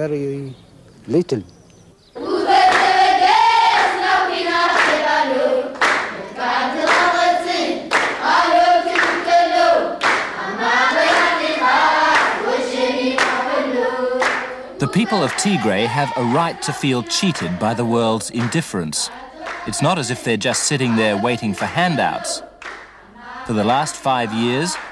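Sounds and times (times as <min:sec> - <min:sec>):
group singing: 0:02.2 - 0:24.9
handclaps: 0:02.7 - 0:03.0, 0:04.7 - 0:05.0, 0:05.8 - 0:06.2, 0:06.8 - 0:07.1, 0:07.9 - 0:08.2, 0:08.9 - 0:09.2, 0:10.0 - 0:10.4, 0:11.1 - 0:11.4, 0:12.1 - 0:12.4, 0:13.2 - 0:13.4, 0:14.2 - 0:15.9, 0:18.3 - 0:18.8, 0:19.4 - 0:21.0, 0:22.6 - 0:23.0, 0:23.6 - 0:24.9.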